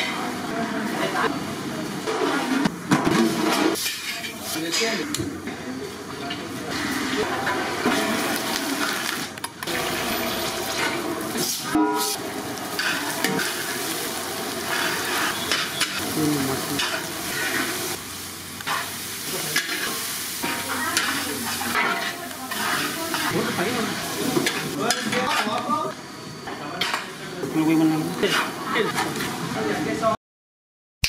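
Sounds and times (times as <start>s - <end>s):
food sizzling in hot oil: 6.7s - 26.2s.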